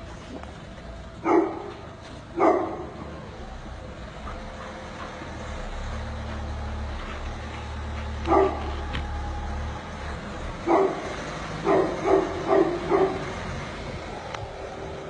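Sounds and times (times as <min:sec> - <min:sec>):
car engine humming: 0:00.0 - 0:15.0
dog barking: 0:01.2 - 0:01.7, 0:02.4 - 0:03.0, 0:08.2 - 0:08.8, 0:10.6 - 0:13.3.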